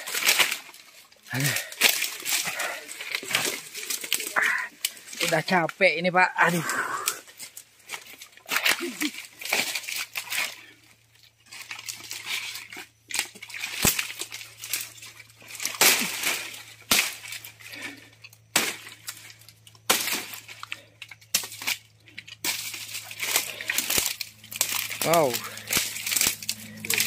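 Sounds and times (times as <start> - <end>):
dry leaves and twigs crackling: 0.0 - 27.0
machete chopping: 15.5 - 17.6, 18.5 - 20.7.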